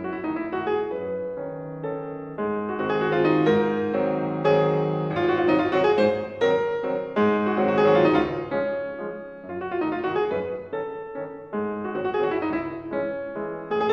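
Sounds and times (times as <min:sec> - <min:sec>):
piano music: 0:00.0 - 0:13.9.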